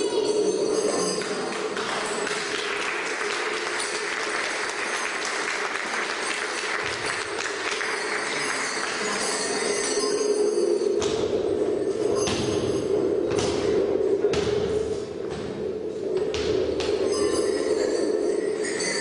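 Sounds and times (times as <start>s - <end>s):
audience clapping: 1.2s - 9.4s.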